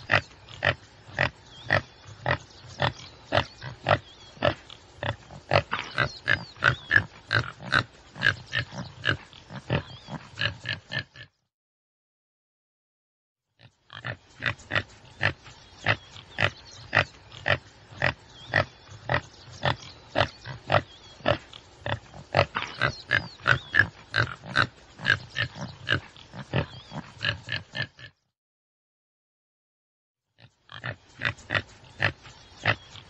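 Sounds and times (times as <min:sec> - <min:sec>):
antelope calling: 0:14.2 - 0:27.7, 0:30.6 - 0:33.0.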